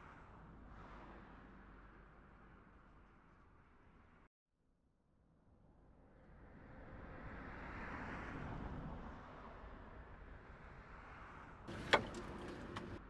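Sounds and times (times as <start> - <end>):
vehicle passing on road: 10.9 - 13.0.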